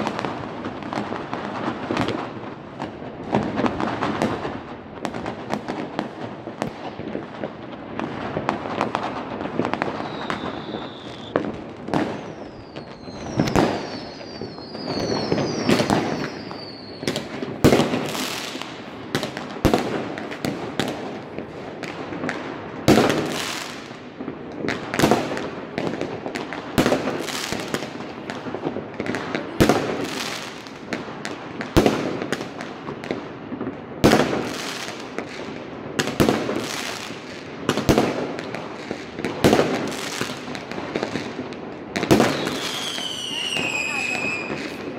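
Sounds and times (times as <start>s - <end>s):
firecrackers crackling: 0.0s - 44.9s
fireworks bangs: 0.0s - 44.9s
falling firework whistles: 9.6s - 18.6s, 42.1s - 44.9s.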